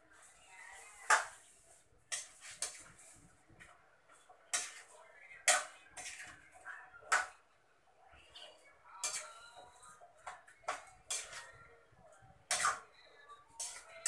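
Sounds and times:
utensil scraping metal pan: 2.1s - 3.1s, 4.5s - 4.9s, 13.6s - 14.0s.

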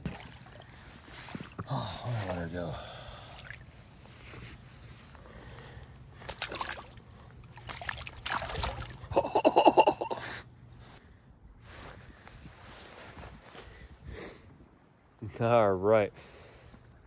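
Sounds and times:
river water splashing: 0.0s - 4.4s, 6.1s - 9.6s
fish splashing away: 6.2s - 9.1s.

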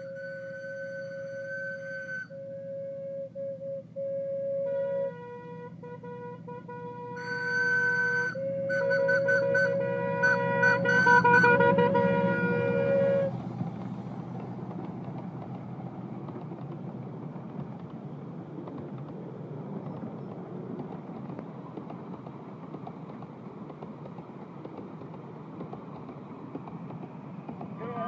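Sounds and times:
steam locomotive whistle: 0.0s - 13.4s
train wheels on track: 0.0s - 28.0s.

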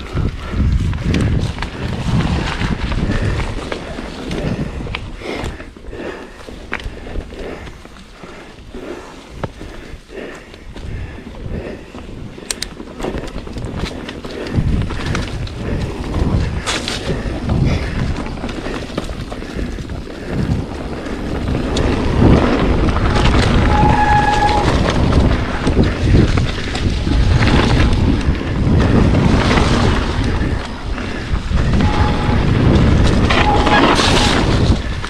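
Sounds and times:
mountain bike rumbling and rattling: 0.0s - 35.0s
wind on microphone: 0.0s - 35.0s
short squeal: 23.6s - 24.8s.

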